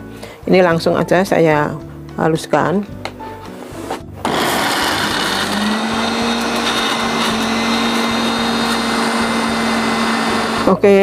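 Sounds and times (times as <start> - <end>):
blender grinding: 4.2 - 10.8.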